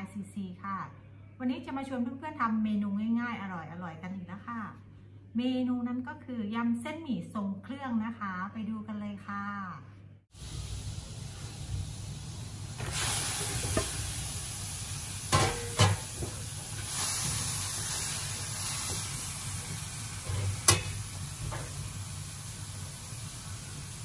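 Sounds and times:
shrimp sizzling in hot oil: 0:10.3 - 0:24.0.

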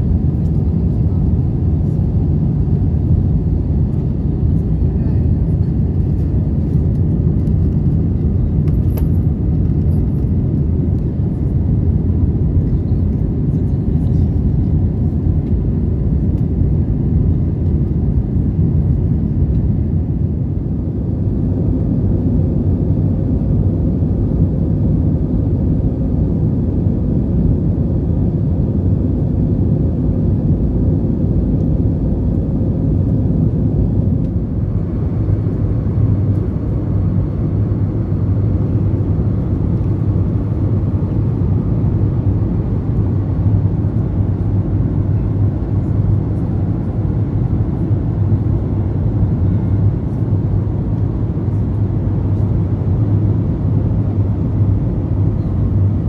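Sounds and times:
airplane cabin engine rumble: 0:00.0 - 0:56.0.

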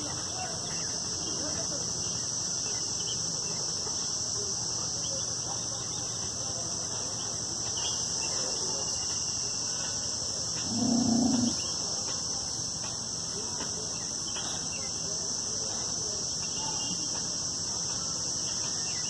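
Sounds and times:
high insect buzz: 0:10.5 - 0:11.7.

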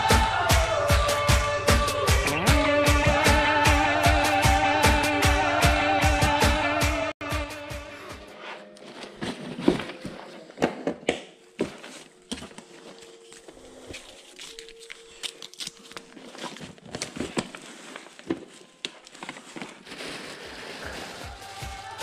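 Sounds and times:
fabric rustling and crinkling: 0:08.4 - 0:22.0.

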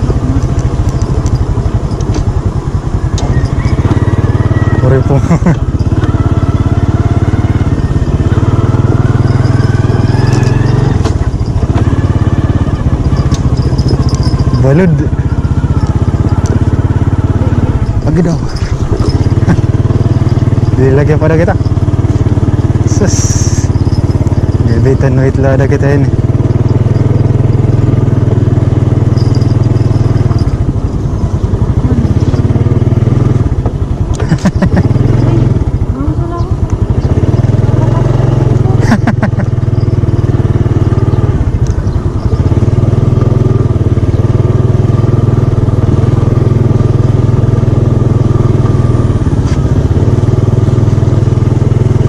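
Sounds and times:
small motorcycle engine running: 0:00.0 - 0:52.0
short rattles: 0:09.2 - 0:32.6, 0:33.3 - 0:37.2
sharp clacks: 0:13.1 - 0:14.6.

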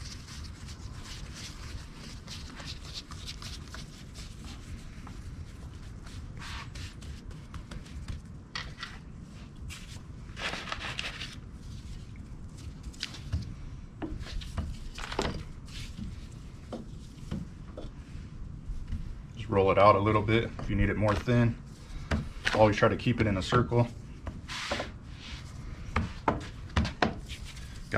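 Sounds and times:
hands patting dough: 0:00.0 - 0:08.8
low steady rumble: 0:00.0 - 0:27.9.

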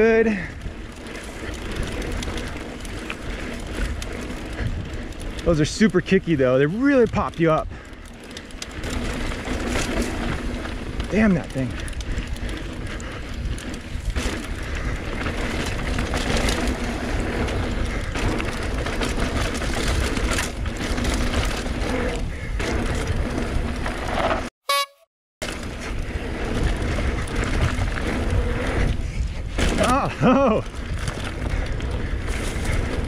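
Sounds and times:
wind rushing over microphone: 0:00.0 - 0:06.3, 0:25.6 - 0:33.0
bike tyre and rattle noise: 0:00.0 - 0:24.5, 0:25.4 - 0:33.0.

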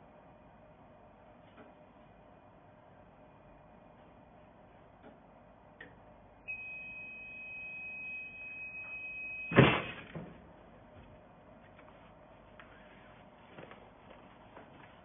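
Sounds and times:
steady high beep: 0:06.4 - 0:09.6.

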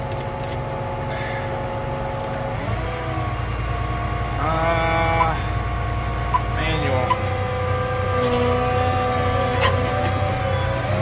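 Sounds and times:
tractor engine revving: 0:00.0 - 0:11.0.

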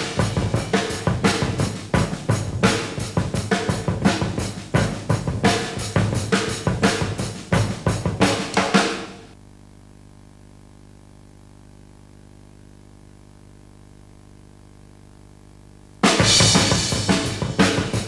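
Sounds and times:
drum kit playing fast rhythm: 0:00.0 - 0:09.4, 0:16.0 - 0:18.0
faint hum and hiss: 0:00.0 - 0:18.0.

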